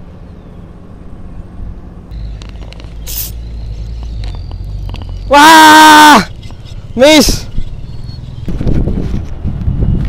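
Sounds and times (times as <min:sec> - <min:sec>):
short hiss: 0:03.0 - 0:03.4.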